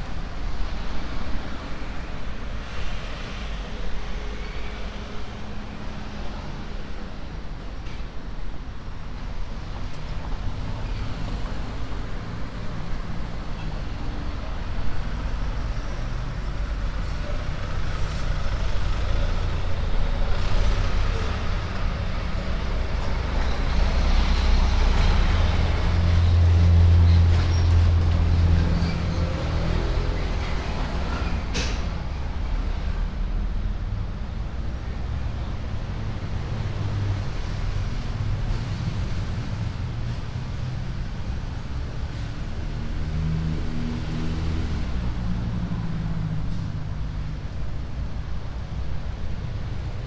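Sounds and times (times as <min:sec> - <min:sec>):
vehicles passing on street: 0:00.0 - 0:50.0.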